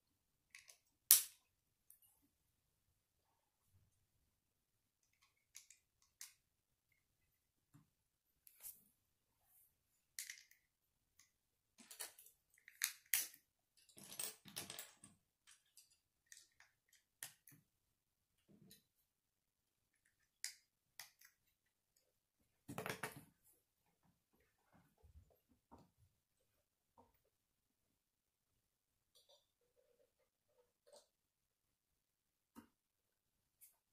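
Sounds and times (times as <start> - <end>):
plastic bricks clicking together: 5.0 - 6.4, 10.2 - 13.5, 20.0 - 21.5.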